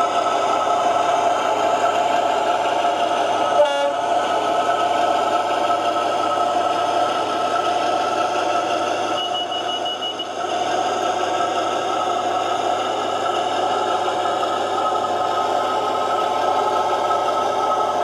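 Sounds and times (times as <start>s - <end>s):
model locomotive engine humming: 0.0s - 18.0s
short high beep: 9.1s - 10.3s.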